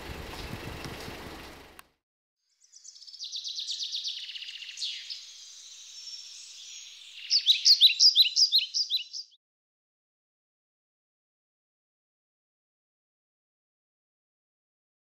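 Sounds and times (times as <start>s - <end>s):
sharp falling bird chirps: 2.6s - 9.4s
songbird high trill: 2.6s - 9.4s.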